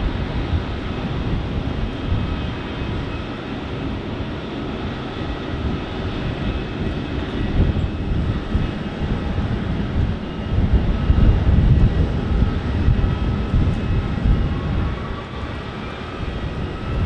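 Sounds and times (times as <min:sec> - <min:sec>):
jet engines humming with whine: 0:00.0 - 0:17.0
wind on microphone: 0:00.0 - 0:17.0.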